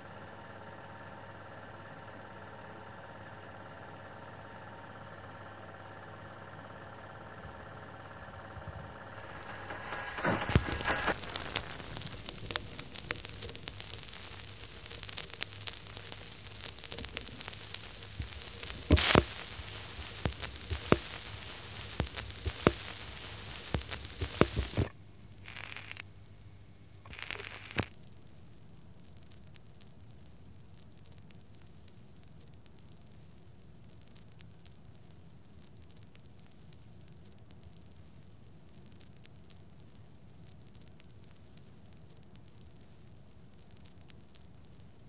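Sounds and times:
low hum: 0.0 - 27.8
steady hiss: 0.0 - 45.0
crackling and sharp pops: 2.3 - 45.0.

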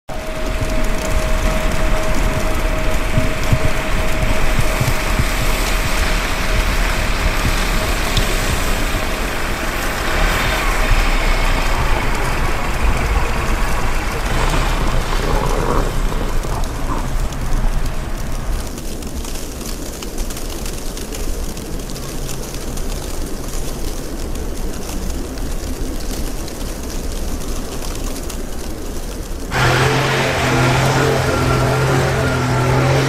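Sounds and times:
wind buffeting microphone: 0.1 - 20.2.

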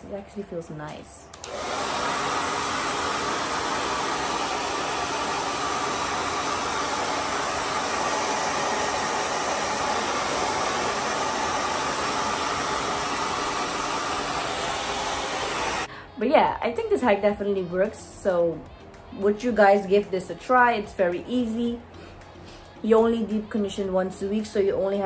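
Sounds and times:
blow dryer whooshing: 1.3 - 15.9.

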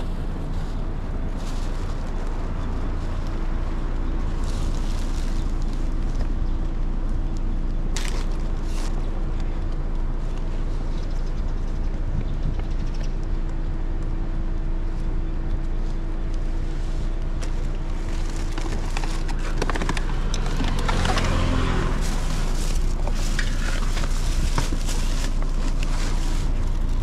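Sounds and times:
car engine idling: 0.0 - 12.2, 13.0 - 27.0
bags rustling and knocking: 17.9 - 27.0.

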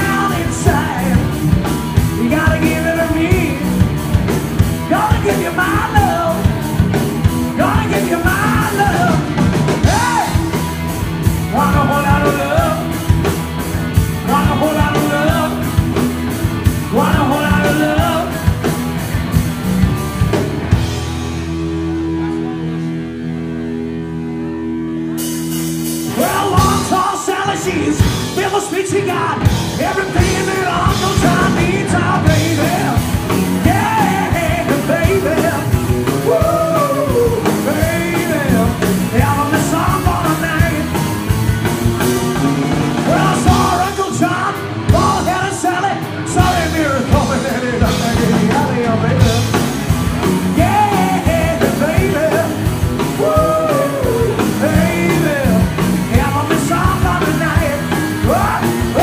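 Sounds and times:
person singing: 0.0 - 1.4, 4.8 - 6.8, 7.5 - 10.6, 11.4 - 13.0, 14.2 - 16.0, 16.7 - 18.6, 26.1 - 41.0, 42.9 - 49.8, 50.5 - 59.0
live rock band: 0.0 - 59.0.

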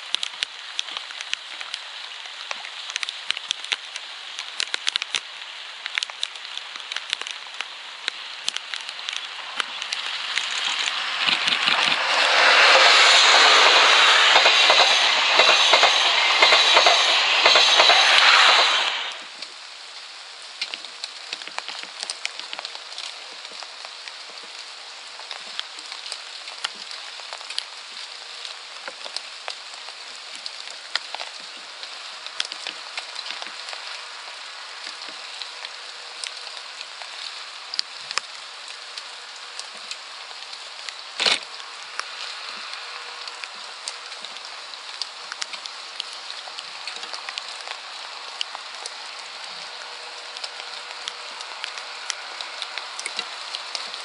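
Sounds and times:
steady rain: 0.0 - 54.0.

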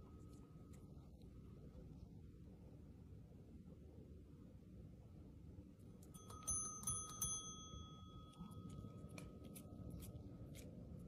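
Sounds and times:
desk service bell ringing: 6.2 - 8.7.

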